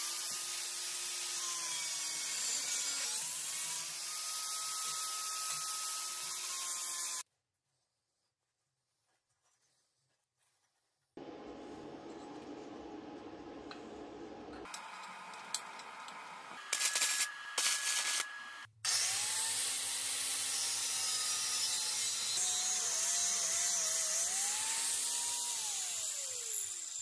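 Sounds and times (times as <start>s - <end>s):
angle grinder grinding steel: 14.6s - 27.0s.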